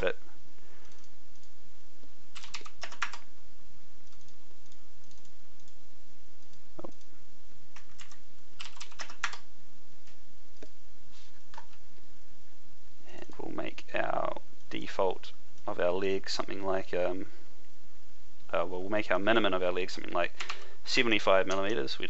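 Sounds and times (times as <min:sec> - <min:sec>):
computer keyboard typing: 0:02.3 - 0:03.3, 0:04.1 - 0:05.8, 0:07.7 - 0:09.5.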